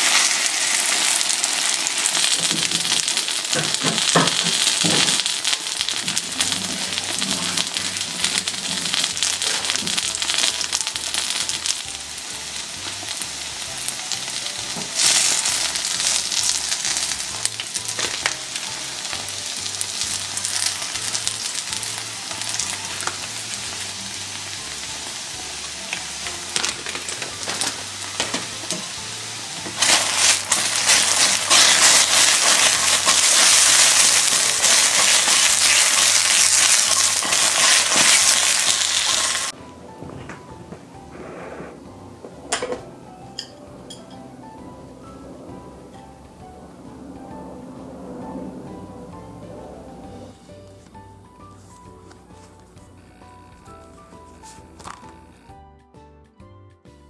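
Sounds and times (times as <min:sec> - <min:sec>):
mushrooms sizzling in oil: 0:00.0 - 0:39.6.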